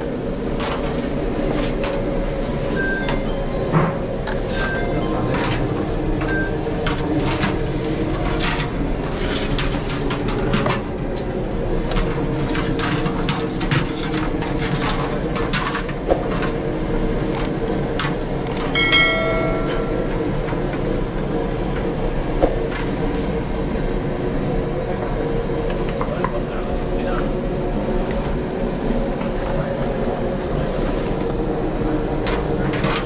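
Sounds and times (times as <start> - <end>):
short bright chime: 18.8 - 20.4.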